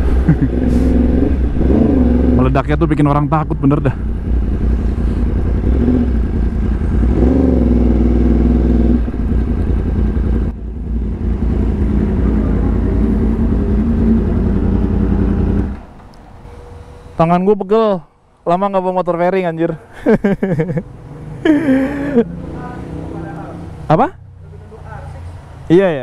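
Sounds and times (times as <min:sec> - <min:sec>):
motorcycle engine revving: 0:00.0 - 0:16.0, 0:20.5 - 0:25.1.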